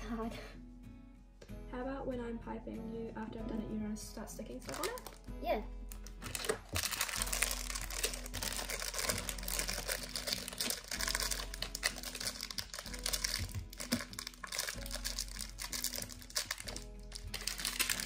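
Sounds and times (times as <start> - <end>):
background music: 0.0 - 18.0
piping bag crinkling: 4.6 - 5.3, 5.9 - 18.0.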